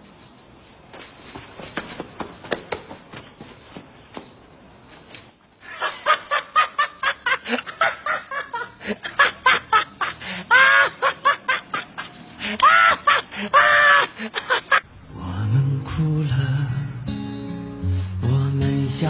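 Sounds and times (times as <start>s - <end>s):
hearty laughter: 5.6s - 14.9s
high-pitched squealing laughs: 5.7s - 14.9s.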